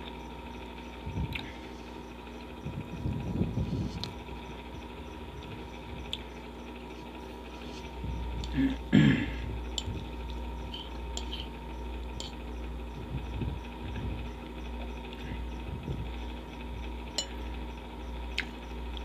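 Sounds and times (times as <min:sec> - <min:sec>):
electric fan hum: 0:00.0 - 0:19.0
fork scraping ceramic bowl: 0:10.7 - 0:11.5.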